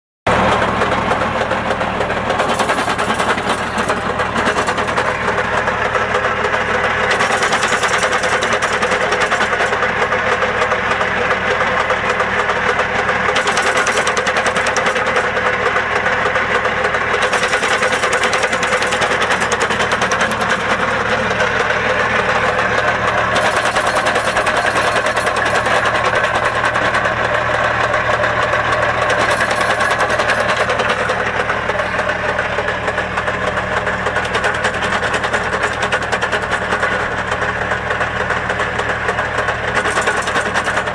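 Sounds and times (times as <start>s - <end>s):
tractor engine running: 0.3s - 40.9s
fast even machine ticking: 2.4s - 11.1s, 11.8s - 40.9s.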